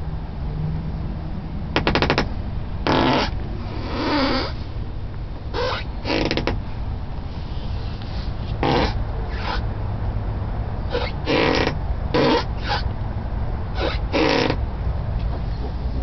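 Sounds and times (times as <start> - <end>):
car door hinge squeaking: 1.8 - 2.3, 2.9 - 4.6, 5.5 - 6.6, 8.6 - 9.6, 10.9 - 12.9, 13.8 - 14.6.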